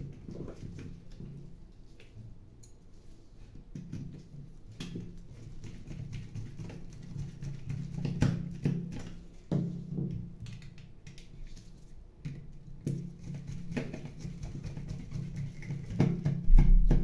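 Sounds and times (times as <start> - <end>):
heavier bump: 16.5 - 17.0.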